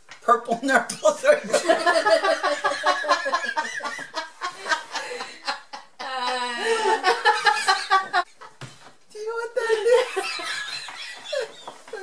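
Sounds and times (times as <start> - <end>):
people laughing hard: 1.4 - 8.3, 9.8 - 12.0.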